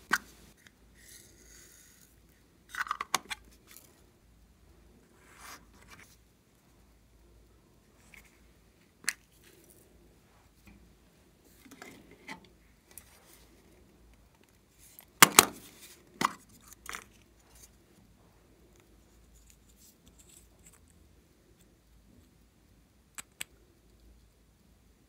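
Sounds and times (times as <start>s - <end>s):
soft rustling: 7.8s - 15.0s.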